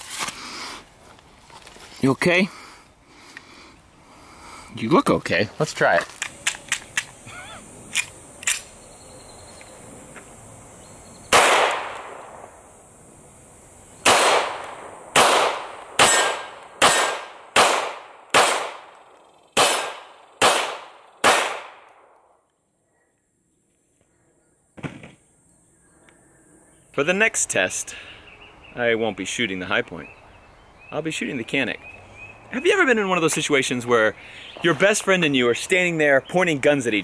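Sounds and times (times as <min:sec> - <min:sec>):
pistol shots ringing: 0:11.3 - 0:12.4, 0:14.0 - 0:18.9, 0:19.6 - 0:21.9.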